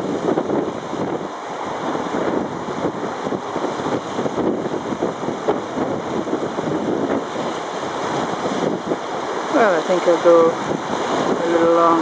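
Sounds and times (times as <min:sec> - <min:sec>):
waves splashing on shore: 0:00.0 - 0:12.0
wind buffeting microphone: 0:00.0 - 0:12.0.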